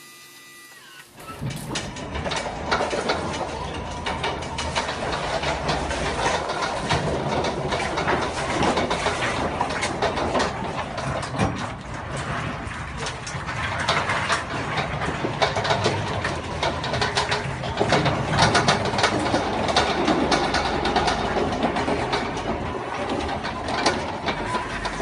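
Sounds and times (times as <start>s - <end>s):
small tracked dozer running: 0.7s - 25.0s
clanks and knocks of debris: 1.2s - 25.0s.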